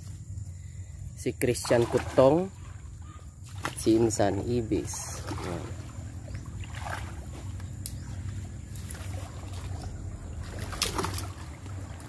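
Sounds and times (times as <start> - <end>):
water splashing from wading: 1.5 - 12.0
low rumble: 5.6 - 12.0.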